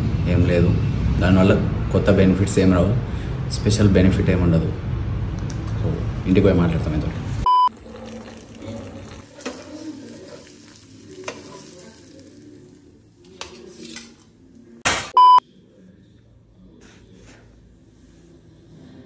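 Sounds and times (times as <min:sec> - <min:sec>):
loud high beep: 0:07.5 - 0:07.7, 0:15.2 - 0:15.4
batter stirred in a pan: 0:07.8 - 0:14.4
faint sizzling: 0:09.0 - 0:14.8.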